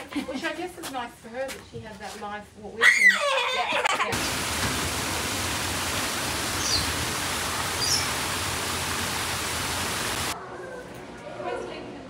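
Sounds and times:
waterfall splashing into a pond: 0:04.1 - 0:10.4.

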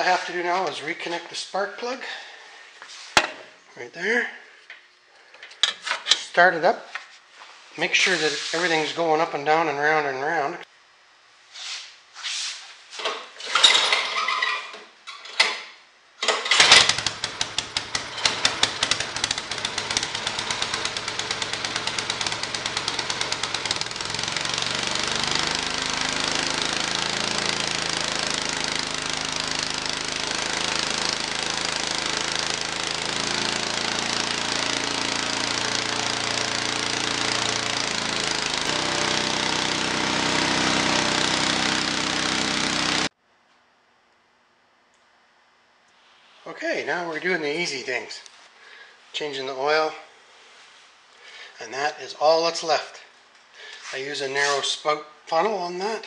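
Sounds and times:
snowblower engine cranking: 0:13.4 - 0:15.4, 0:16.2 - 0:43.2
snowblower engine running: 0:16.2 - 0:43.2.

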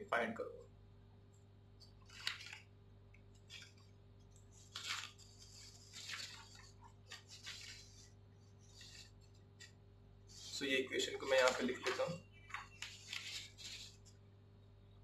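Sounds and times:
paper rustling and sliding: 0:02.0 - 0:02.7, 0:03.3 - 0:14.2.

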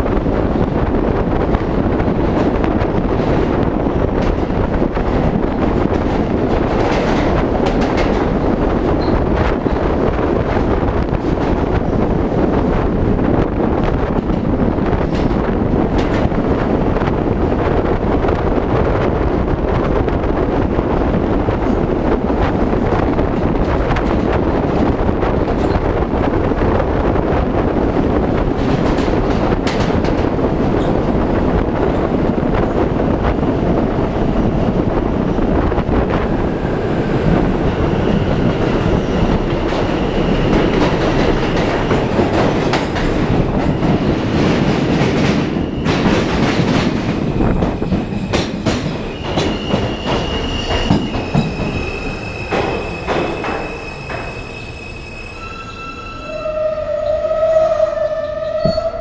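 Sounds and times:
subway train rumbling in tunnel: 0:00.0 - 0:59.0
wheel squeal: 0:49.0 - 0:59.0.

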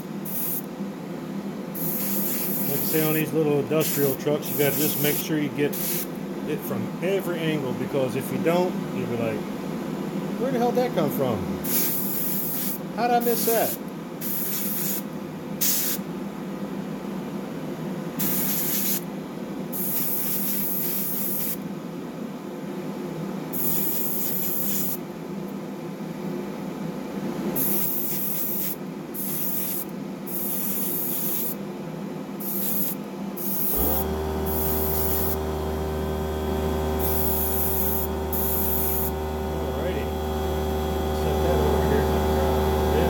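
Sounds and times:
airbrush hissing: 0:00.3 - 0:00.7, 0:01.8 - 0:03.2, 0:03.8 - 0:06.1, 0:11.6 - 0:13.5, 0:14.2 - 0:15.0, 0:18.2 - 0:19.0, 0:19.8 - 0:21.6, 0:23.6 - 0:25.0, 0:27.6 - 0:31.6, 0:32.4 - 0:42.1
air compressor motor hum: 0:01.8 - 0:06.2, 0:27.5 - 0:31.6, 0:32.4 - 0:43.0.

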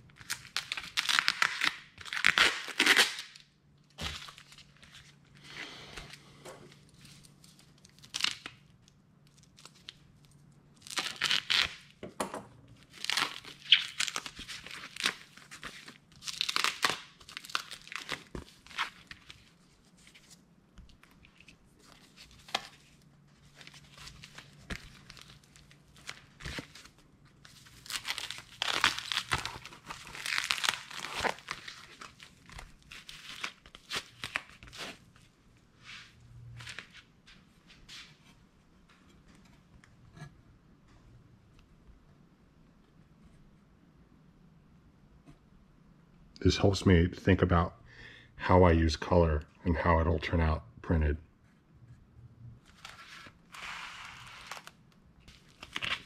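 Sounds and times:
plastic packaging crinkling: 0:12.8 - 0:20.3, 0:20.9 - 0:35.1, 0:52.7 - 0:56.0.

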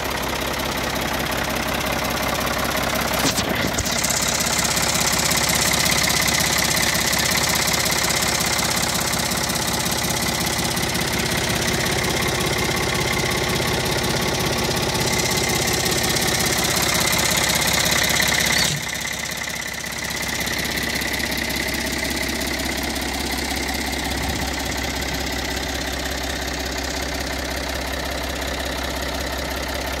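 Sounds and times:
diesel tractor engine idling: 0:00.0 - 0:30.0.

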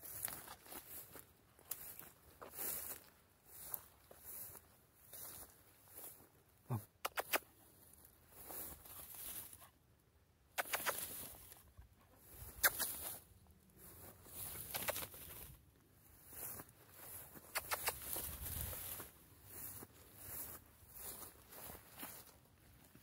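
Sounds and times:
sharp clicks: 0:07.0 - 0:07.4, 0:10.6 - 0:11.1, 0:17.6 - 0:18.1.

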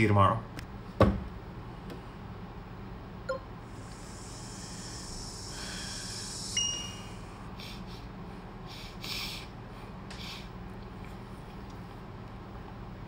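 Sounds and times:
man breathing and sniffing: 0:03.7 - 0:10.6
short high beep: 0:06.6 - 0:07.0.

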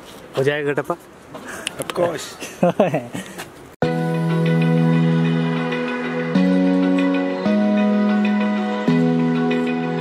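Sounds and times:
background music with held chords: 0:03.8 - 0:10.0.

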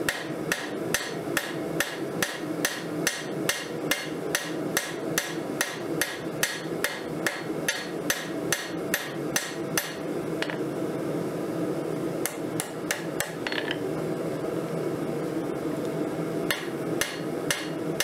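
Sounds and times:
hammer striking metal on anvil: 0:00.1 - 0:10.6, 0:16.5 - 0:17.8.

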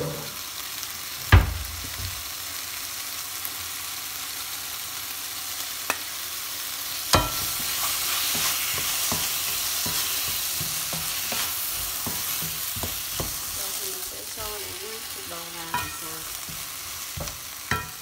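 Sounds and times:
food sizzling in a pan: 0:00.0 - 0:18.0
wooden spatula scraping a pan: 0:07.2 - 0:18.0.

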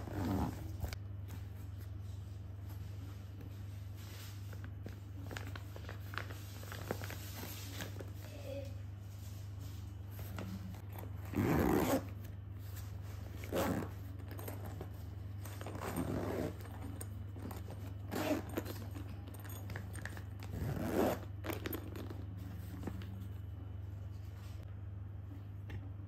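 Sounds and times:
zipper being pulled: 0:00.0 - 0:01.0, 0:10.9 - 0:12.2, 0:13.2 - 0:22.2.

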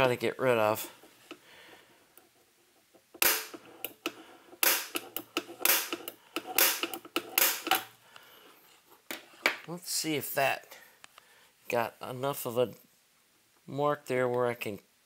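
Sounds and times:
center punch snapping on metal: 0:03.2 - 0:03.6, 0:04.6 - 0:06.0, 0:06.6 - 0:07.9.

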